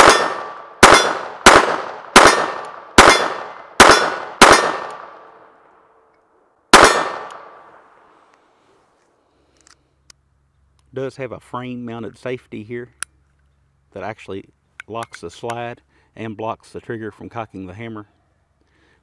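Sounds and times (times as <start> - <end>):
pistol shots: 0.0 - 5.4, 6.7 - 7.7.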